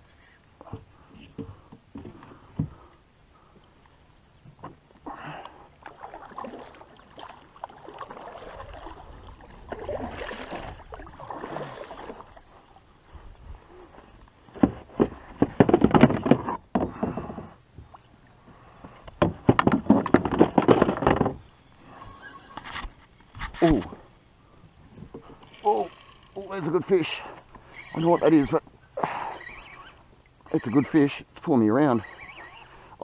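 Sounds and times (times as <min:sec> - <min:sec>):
kayak paddle strokes splashing: 0:05.6 - 0:12.8, 0:31.8 - 0:33.0.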